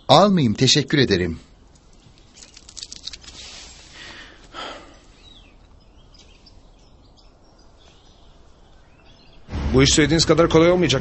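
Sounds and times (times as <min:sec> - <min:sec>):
faint bird chirps: 0:04.8 - 0:09.5.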